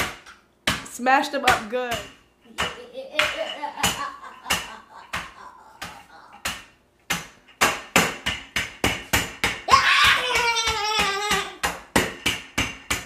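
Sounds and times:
rolling pin pounding cookies: 0.0 - 13.0
child crying out: 9.7 - 11.6.

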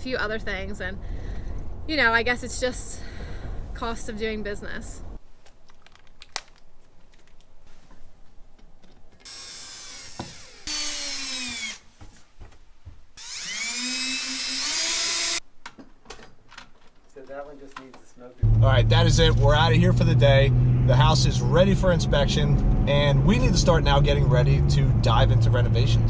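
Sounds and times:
handling clicks and knocks: 5.4 - 7.6, 8.5 - 9.3, 15.6 - 18.1
cordless drill driving screws: 9.2 - 11.9, 13.2 - 15.4.

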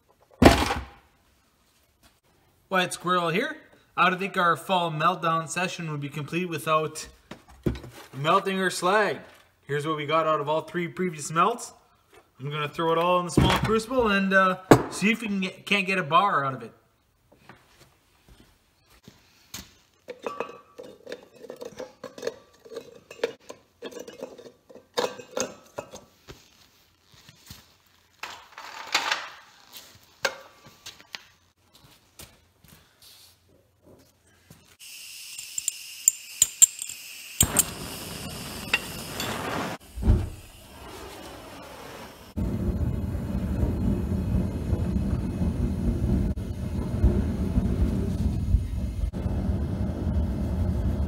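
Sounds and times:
metal chunks clinking in crucible: 35.4 - 37.8
thump: 40.0 - 40.4.

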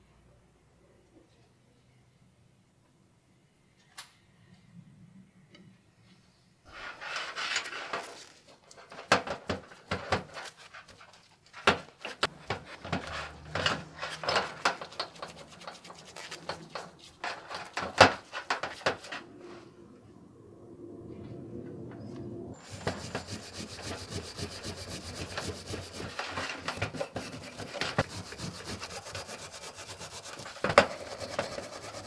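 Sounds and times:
wet rubbing and sloshing: 12.3 - 17.8, 22.6 - 32.0.

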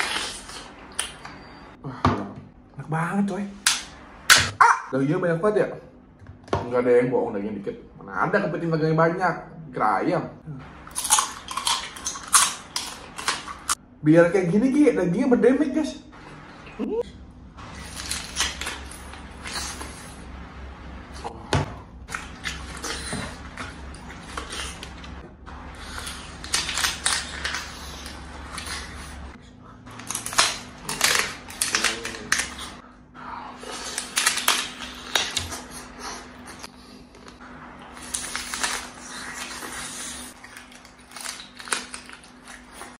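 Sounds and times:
sucking and chewing crab: 0.0 - 1.6, 10.7 - 13.8, 16.3 - 21.4, 22.0 - 43.0.

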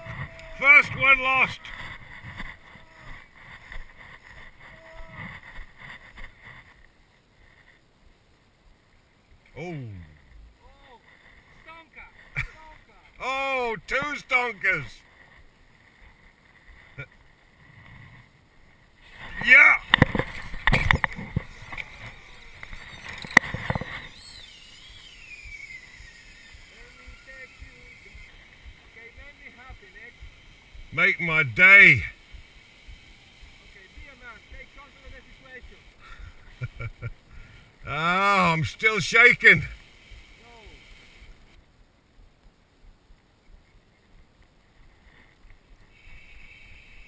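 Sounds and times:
fishing rod and reel clicks: 19.1 - 30.7
faint wavering whistle: 21.5 - 29.5.

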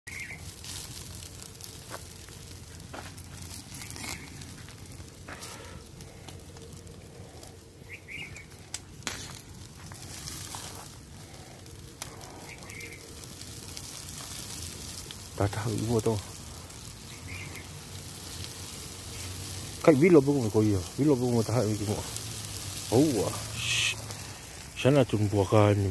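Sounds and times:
fire crackling and popping: 0.1 - 25.9.

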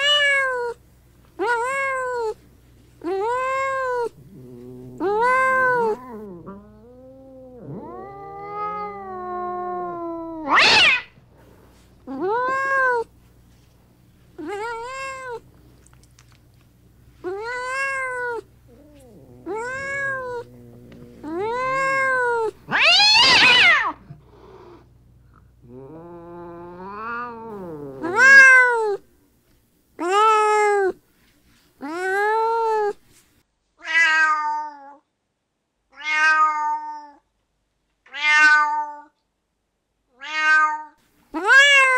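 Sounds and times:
cats meowing: 0.0 - 0.8, 1.4 - 2.4, 3.0 - 11.2, 12.0 - 13.1, 14.4 - 16.4, 17.2 - 24.8, 25.7 - 29.0, 38.1 - 39.1, 40.2 - 41.9
harsh cat cries: 0.0 - 0.8, 3.0 - 11.2, 12.1 - 13.1, 17.2 - 24.1, 25.7 - 29.0, 33.8 - 35.0, 36.0 - 37.2, 38.1 - 39.1, 40.2 - 41.9.

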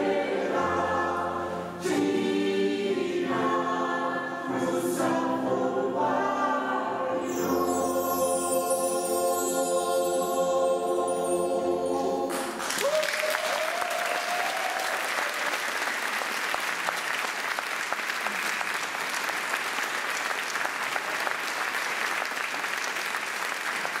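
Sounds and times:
choir with keyboard: 0.0 - 12.8
audience applause: 12.3 - 24.0.

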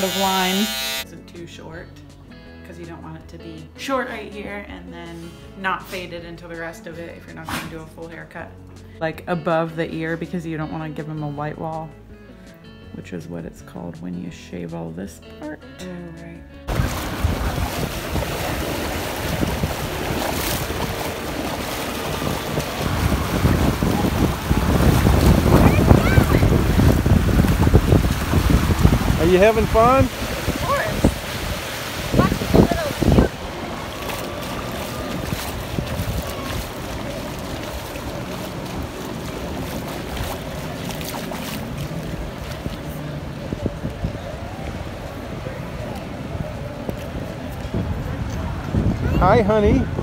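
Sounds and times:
distant motorboats: 0.0 - 8.9, 15.6 - 50.0
small waves breaking: 16.7 - 50.0
wind buffeting microphone: 16.7 - 50.0.

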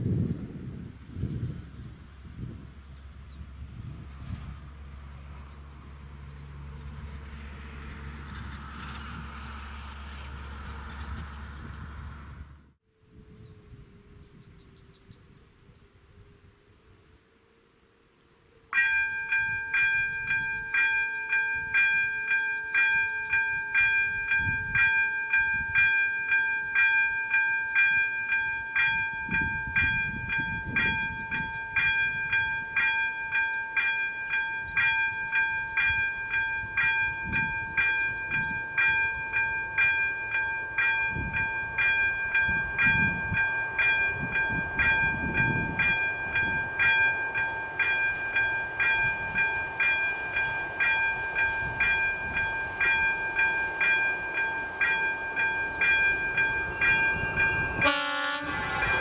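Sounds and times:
level crossing bell ringing: 18.8 - 59.0.

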